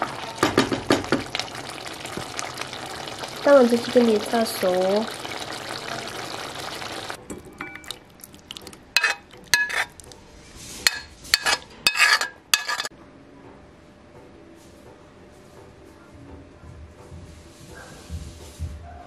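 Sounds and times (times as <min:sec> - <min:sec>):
curry simmering and hissing: 0:00.9 - 0:07.2
spoon scraping ceramic bowl: 0:09.0 - 0:10.1, 0:10.8 - 0:12.9.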